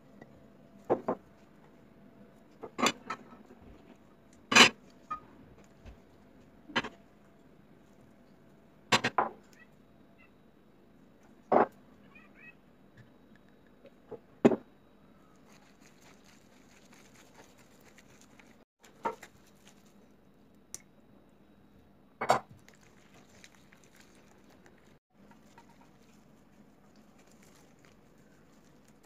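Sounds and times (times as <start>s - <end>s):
soft squishing of minced meat: 15.3s - 20.3s, 22.5s - 29.0s.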